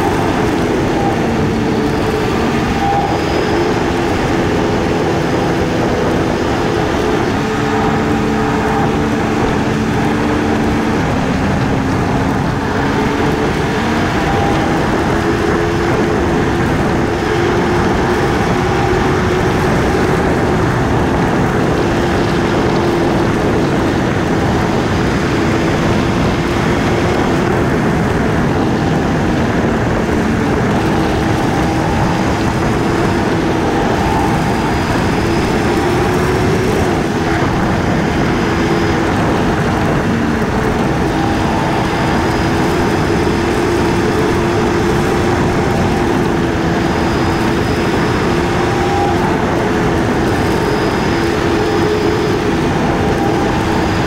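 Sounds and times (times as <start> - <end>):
motorcycle engine cruising: 0.0 - 54.0
wind and road noise: 0.0 - 54.0.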